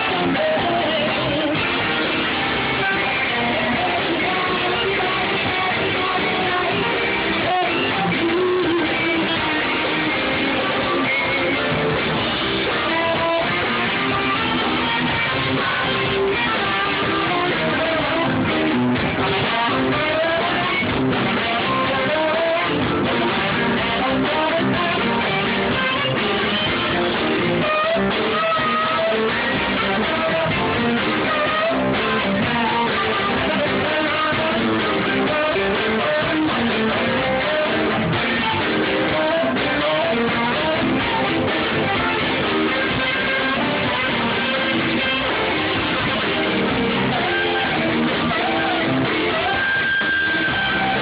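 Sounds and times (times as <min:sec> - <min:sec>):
electric guitar: 0:00.0 - 0:51.0
soul band playing: 0:00.0 - 0:51.0
saxophone: 0:19.3 - 0:51.0.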